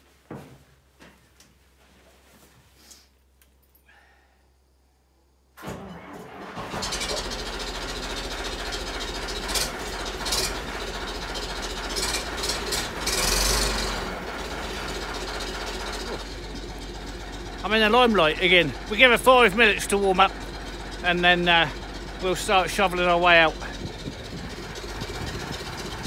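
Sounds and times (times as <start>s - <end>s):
diesel engine starting and running: 5.4s - 26.0s.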